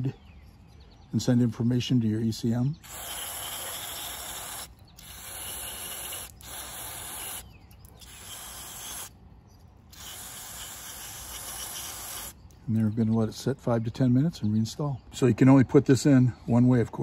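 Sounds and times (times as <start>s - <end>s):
aerosol can spray hissing: 10.0s - 12.3s.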